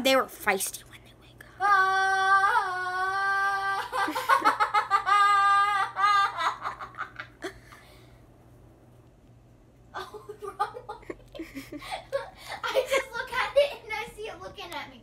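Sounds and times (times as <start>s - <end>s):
girl laughing: 3.2s - 7.8s, 9.9s - 14.0s.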